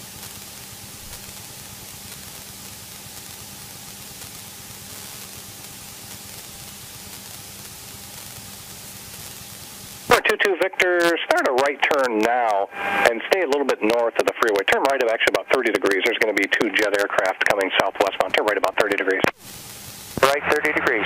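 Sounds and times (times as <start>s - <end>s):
headset intercom hiss: 6.2s - 21.0s.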